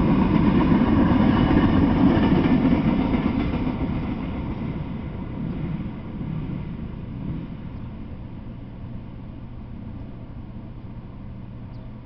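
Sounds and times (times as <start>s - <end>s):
freight train rumble: 0.0s - 12.0s
steady low hum: 3.9s - 12.0s.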